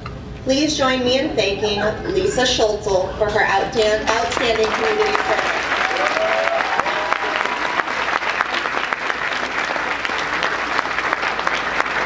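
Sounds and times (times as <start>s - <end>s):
audience applauding: 4.0s - 12.0s.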